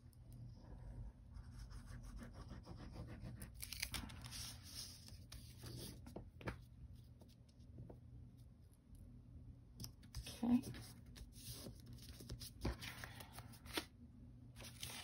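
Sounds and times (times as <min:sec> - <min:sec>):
paper sliding rustle: 0:03.6 - 0:06.1.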